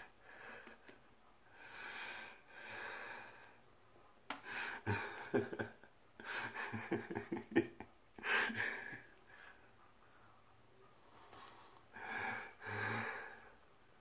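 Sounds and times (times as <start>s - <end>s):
man breathing heavily: 0.1s - 3.5s, 11.9s - 13.6s.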